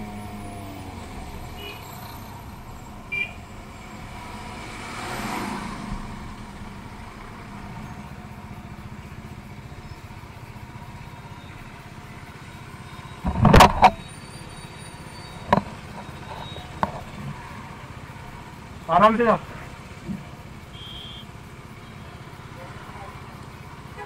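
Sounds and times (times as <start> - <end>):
vehicle passing: 0.0 - 9.3.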